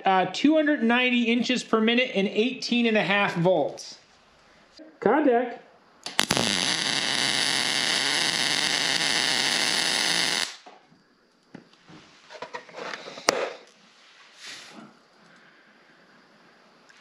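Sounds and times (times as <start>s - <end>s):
welding arc buzzing: 6.0s - 10.7s.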